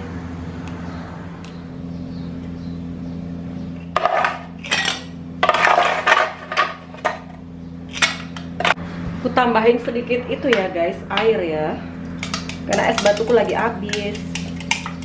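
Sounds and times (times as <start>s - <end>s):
steady low hum: 0.0s - 15.0s
kitchenware clattering and clinking: 3.9s - 7.3s.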